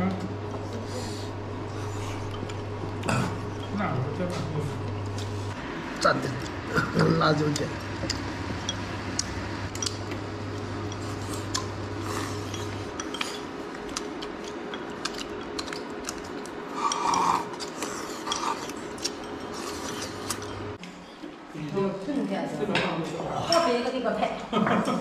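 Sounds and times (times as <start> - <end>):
chopsticks clinking on porcelain bowls: 10.8 - 20.6.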